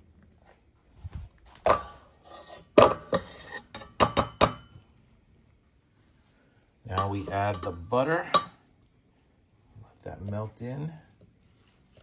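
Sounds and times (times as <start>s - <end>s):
metal cookware clanking: 1.6s - 4.8s, 6.9s - 8.6s.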